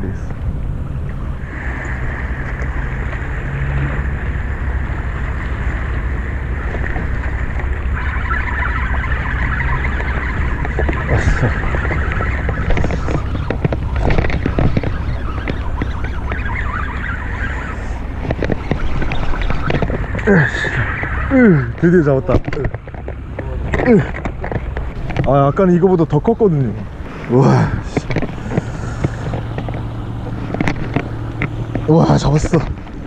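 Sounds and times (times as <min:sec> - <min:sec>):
wind rumble on microphone: 0:00.0 - 0:33.0
reel clicks: 0:06.5 - 0:25.4.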